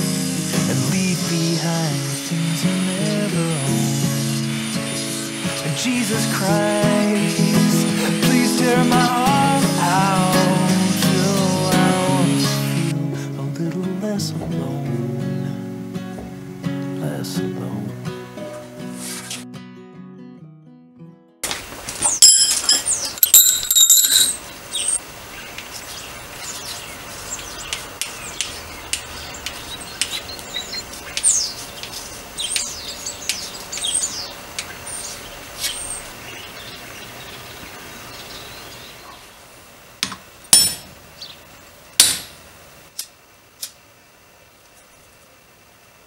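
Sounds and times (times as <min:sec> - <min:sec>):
steel bars clinking: 0:22.0 - 0:25.0.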